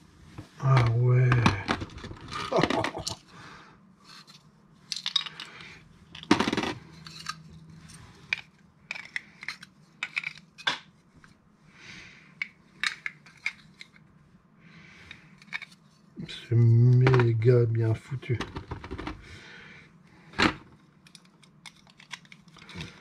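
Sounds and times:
parcel handling noise: 4.0 - 11.4, 12.4 - 14.2, 15.0 - 16.2, 20.6 - 23.0.

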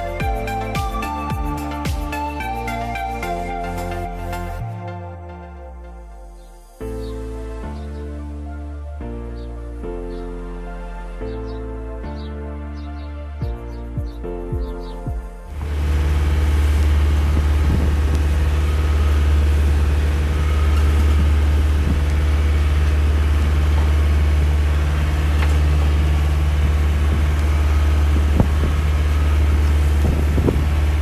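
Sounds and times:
motorboat engine droning: 15.4 - 31.0.

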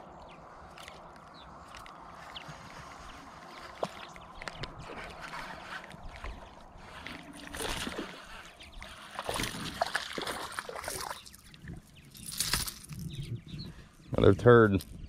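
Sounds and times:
fish splashing at surface: 9.1 - 11.2.

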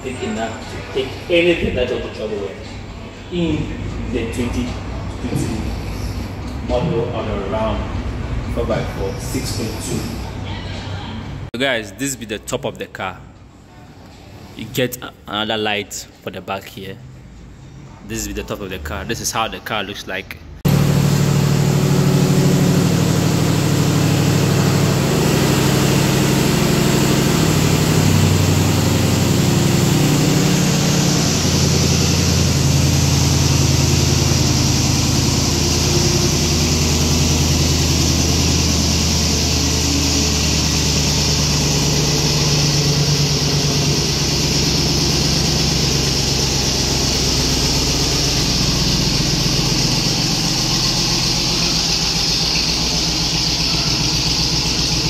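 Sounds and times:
engine idling: 20.6 - 55.0.

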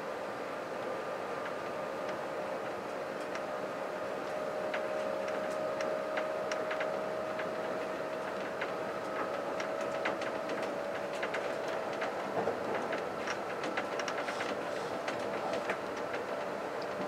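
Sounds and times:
train whine over rumbling hum: 0.0 - 17.0
small clicks and rattles: 4.7 - 17.0.

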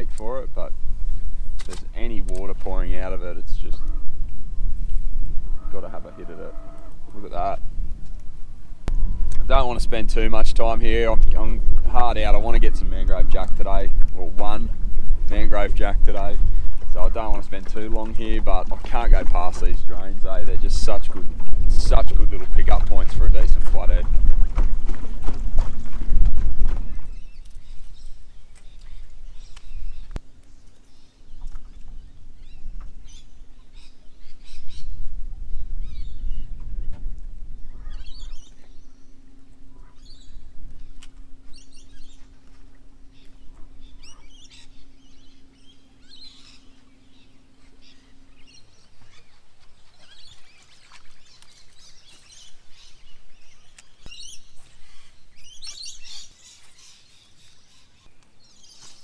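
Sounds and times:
birds chirping: 0.0 - 59.0
steady low hum: 0.0 - 59.0
low rumble: 0.5 - 30.2.

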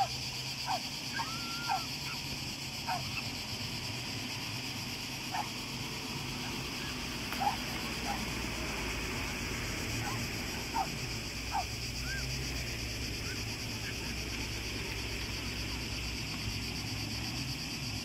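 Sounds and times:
cicadas buzzing: 0.0 - 18.0
short falling animal calls: 0.7 - 2.2.

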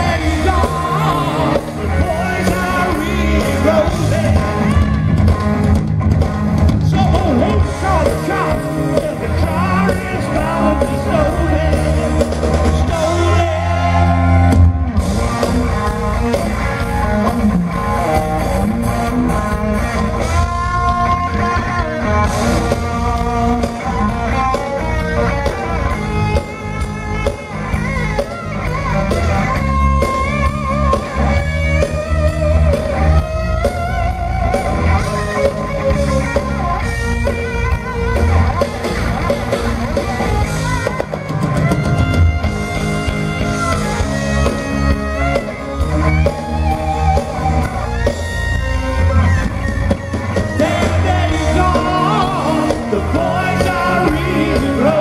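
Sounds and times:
man singing lead vocal: 0.0 - 5.2, 6.8 - 14.6, 50.5 - 55.0
drum kit: 0.0 - 55.0
electric guitars: 0.0 - 55.0.

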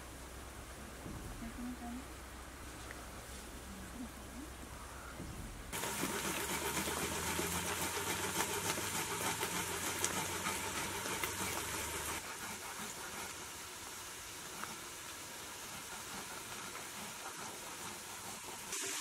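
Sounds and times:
faint steady hiss: 0.0 - 6.1, 11.1 - 19.0.

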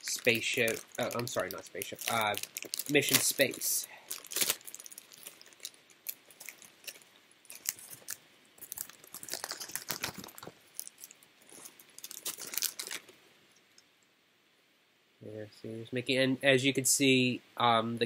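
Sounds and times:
plastic packaging crinkling: 0.0 - 13.2.

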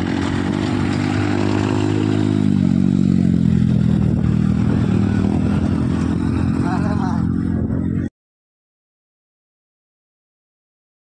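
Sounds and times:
vehicle engine running: 0.0 - 8.1.

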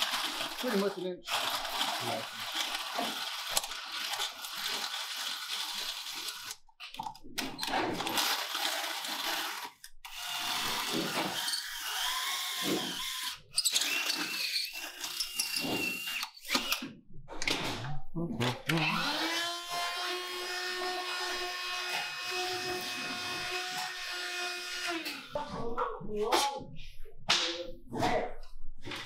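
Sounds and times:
power drill boring into steel: 8.1 - 16.8, 18.8 - 25.3.

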